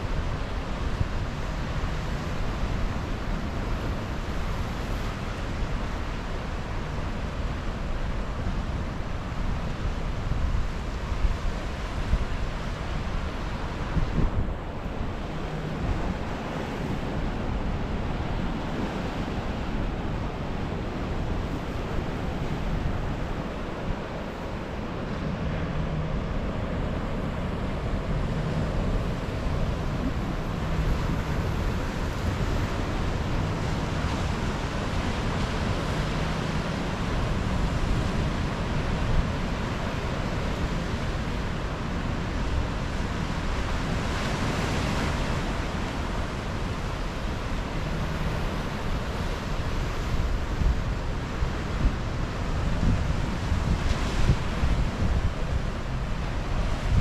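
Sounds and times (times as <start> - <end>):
wind buffeting microphone: 10.2 - 41.0.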